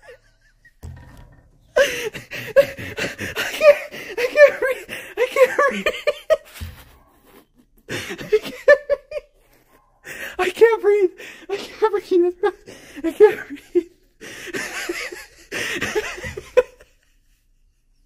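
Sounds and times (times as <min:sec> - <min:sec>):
man laughing hard: 0:01.8 - 0:06.6.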